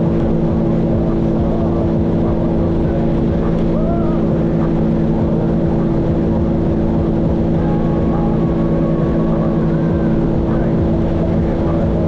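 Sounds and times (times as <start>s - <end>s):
personal watercraft engine running: 0.0s - 12.0s.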